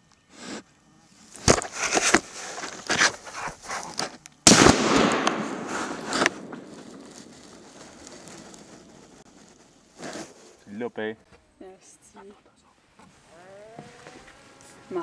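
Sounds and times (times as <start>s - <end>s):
fur rubbing against camera: 1.2s - 4.2s, 5.6s - 10.8s
rifle shot with echo: 4.5s - 7.6s.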